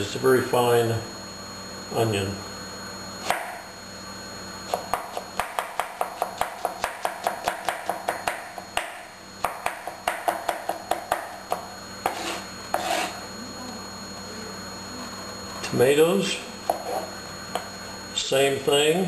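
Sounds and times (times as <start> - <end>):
knife chopping on cutting board: 4.7 - 13.1.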